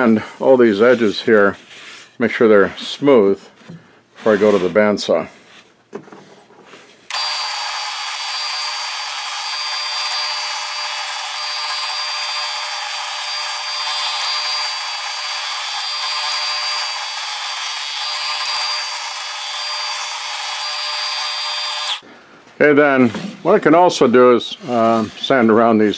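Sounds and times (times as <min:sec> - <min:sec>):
belt sander whining: 0:07.1 - 0:22.0
wood being sanded: 0:07.1 - 0:22.0.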